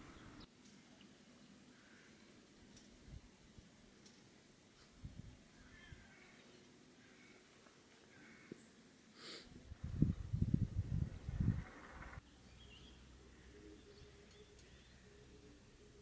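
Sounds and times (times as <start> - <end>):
wind buffeting microphone: 5.0 - 6.0, 9.7 - 12.2
faint bird chirps: 11.2 - 16.0.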